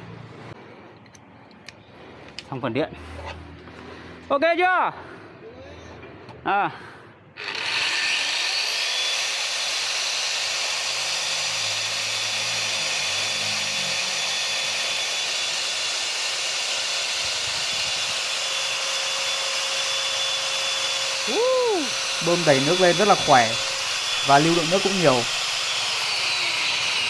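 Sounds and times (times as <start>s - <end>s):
wall chaser motor whine: 7.4s - 27.0s.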